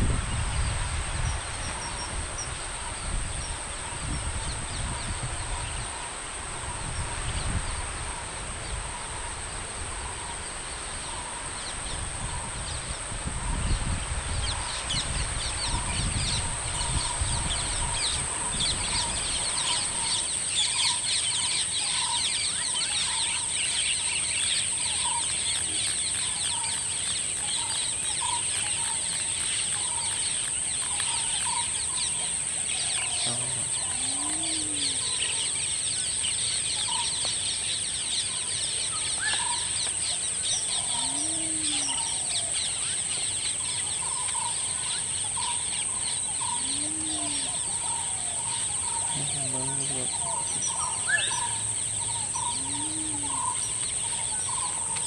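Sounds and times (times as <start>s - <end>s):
birds chirping: 0.0s - 55.0s
low bird calls: 0.0s - 55.0s
steady high-pitched drone: 33.2s - 35.6s.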